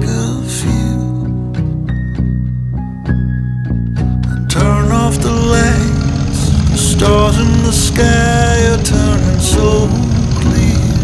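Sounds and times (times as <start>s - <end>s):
music with plucked notes: 0.0s - 11.0s
motorcycle engines running: 4.3s - 11.0s.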